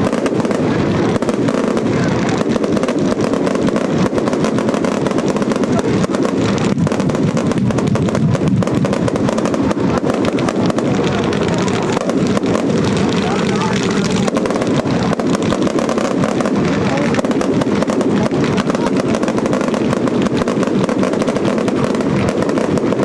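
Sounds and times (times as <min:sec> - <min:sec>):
fireworks bangs and crackles: 0:00.0 - 0:23.0.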